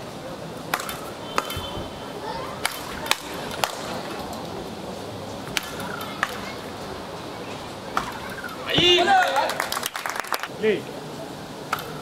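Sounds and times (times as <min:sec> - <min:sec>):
paddles hitting ball: 0:08.7 - 0:09.4.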